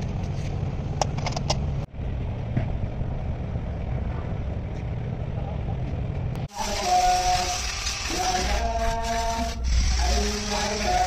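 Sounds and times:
engine idling rumble: 0.0 - 6.5.

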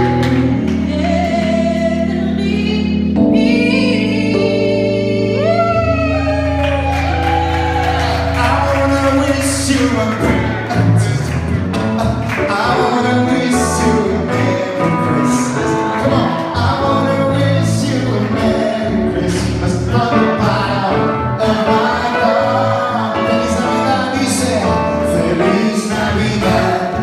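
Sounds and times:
instrumental backing track: 0.0 - 27.0
man singing into microphone: 8.1 - 27.0.

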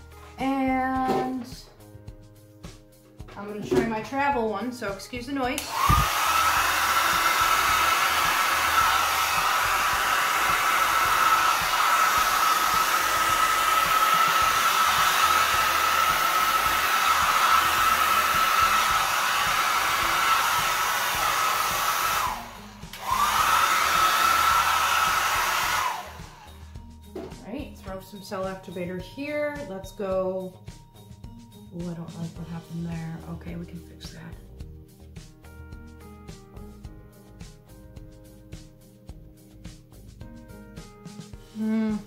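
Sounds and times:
hair dryer whining: 3.4 - 28.7.

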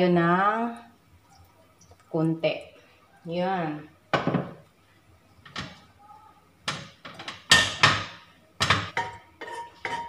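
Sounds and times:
metal pans clattering on grates: 6.7 - 10.0.

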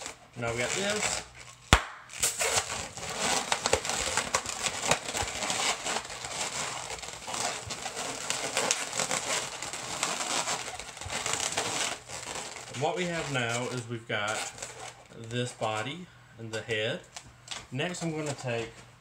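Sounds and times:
balloons squeaking and rubbing: 0.0 - 16.0
balloon snap: 1.7 - 2.6.

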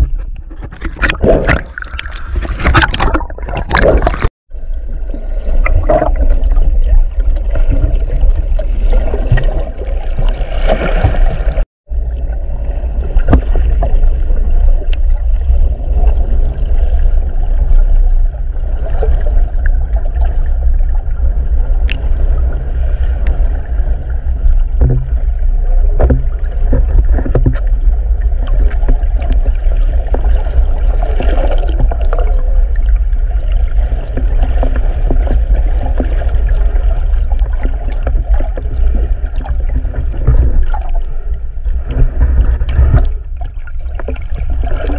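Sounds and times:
underwater rumble of moving water: 0.0 - 44.9
water gurgling: 0.0 - 44.9
small clicks underwater: 21.8 - 22.0.

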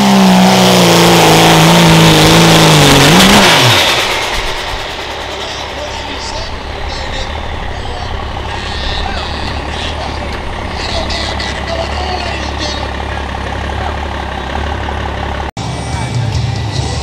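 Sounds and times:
diesel engine idling: 0.0 - 17.0
crowd voices: 4.3 - 17.0.

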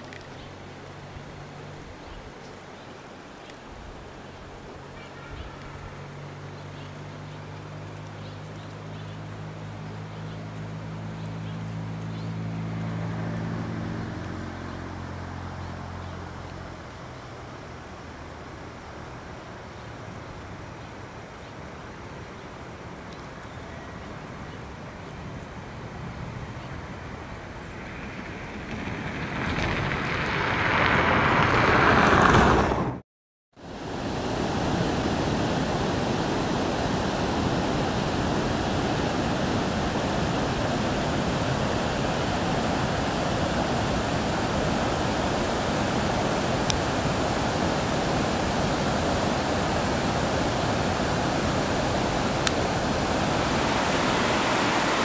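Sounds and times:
mountain river rushing: 0.0 - 32.8, 33.6 - 55.0
rush of noise: 23.8 - 33.0, 33.6 - 55.0.

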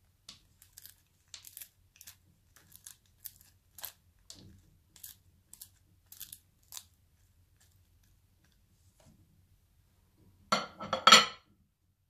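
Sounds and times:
spoon scraping crunchy cereal: 0.3 - 8.2.

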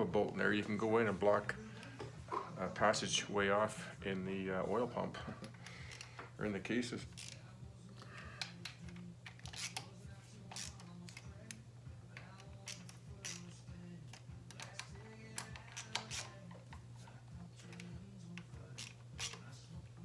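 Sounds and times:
steady low hum: 0.0 - 20.0
hand tools clicking and tapping: 14.1 - 16.9.

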